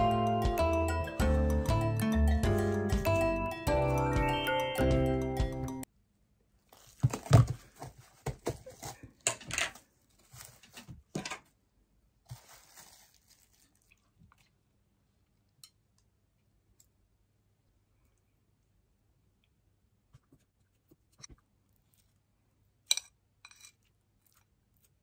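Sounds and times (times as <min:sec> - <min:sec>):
plastic film crinkling: 0:06.6 - 0:11.0, 0:12.2 - 0:14.2.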